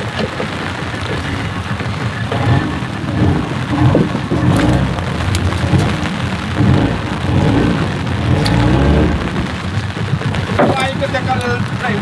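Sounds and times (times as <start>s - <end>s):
heavy low rumble: 0.0s - 12.0s
rain falling: 0.0s - 12.0s.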